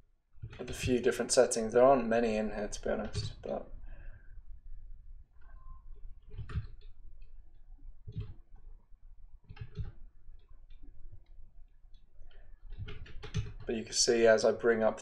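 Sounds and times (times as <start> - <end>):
computer mouse clicking: 5.4 - 7.0, 8.0 - 8.5, 9.4 - 11.3, 11.9 - 13.7.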